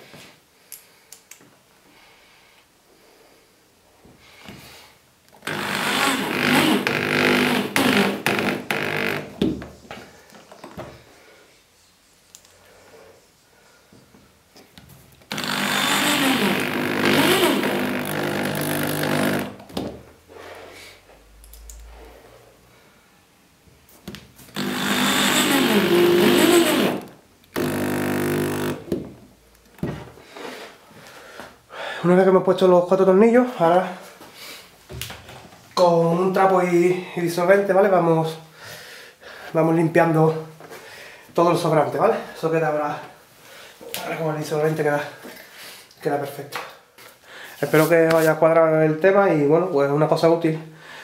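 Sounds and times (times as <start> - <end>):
cordless drill whining: 5.4 - 9.4, 15.3 - 19.7, 24.5 - 29.0.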